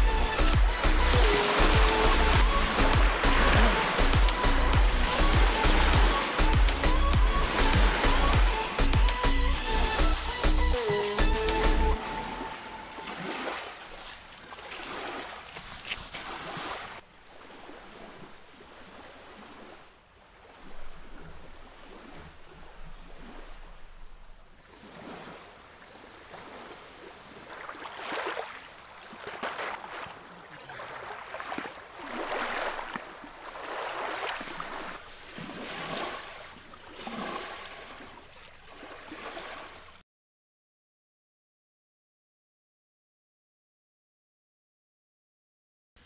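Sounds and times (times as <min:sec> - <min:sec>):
small waves lapping on shore: 0:00.0 - 0:10.4, 0:12.0 - 0:40.0.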